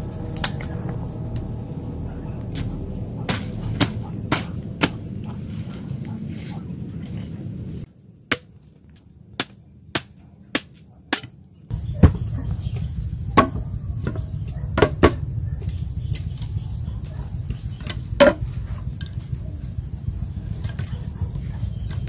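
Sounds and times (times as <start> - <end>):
bamboo poles knocking: 13.4 - 15.2, 17.8 - 19.2.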